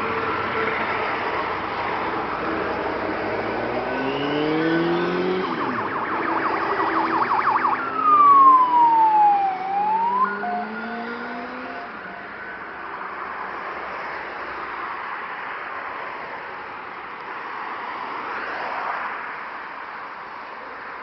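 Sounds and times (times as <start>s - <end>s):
car engines passing: 0.0s - 21.0s
emergency vehicle siren: 3.3s - 13.3s.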